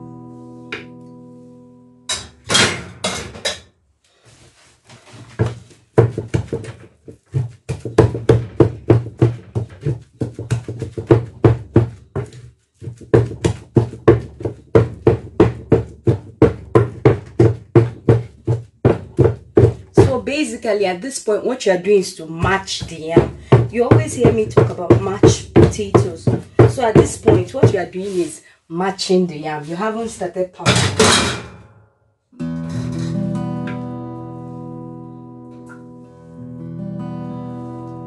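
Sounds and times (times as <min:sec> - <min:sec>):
wooden pestle thudding in mortar: 0:05.3 - 0:20.4, 0:22.4 - 0:28.2.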